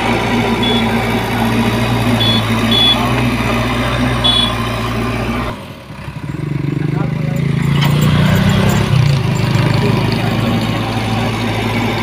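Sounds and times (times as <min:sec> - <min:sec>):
diesel engine running: 0:00.0 - 0:12.0
short high beeps: 0:00.6 - 0:01.0, 0:02.2 - 0:03.0, 0:04.2 - 0:04.6.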